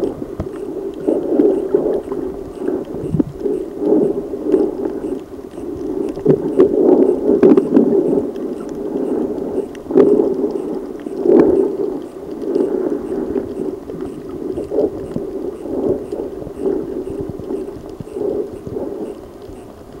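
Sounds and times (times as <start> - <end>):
muffled underwater water noise: 0.0 - 20.0.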